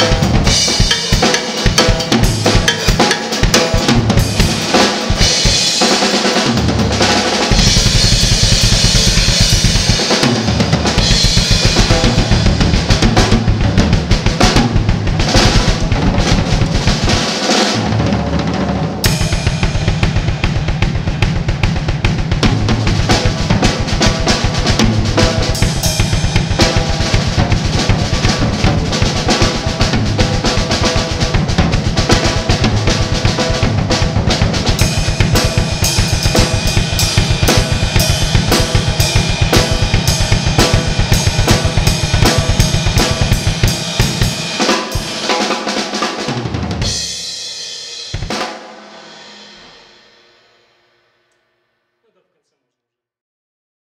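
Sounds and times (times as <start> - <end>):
bass drum: 0.0 - 49.9
snare drum: 0.0 - 50.0.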